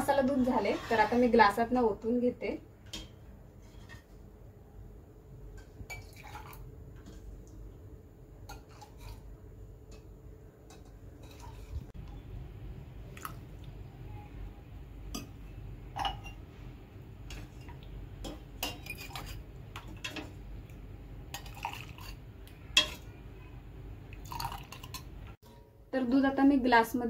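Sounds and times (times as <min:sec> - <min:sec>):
milk pouring and dripping: 0:13.1 - 0:13.8.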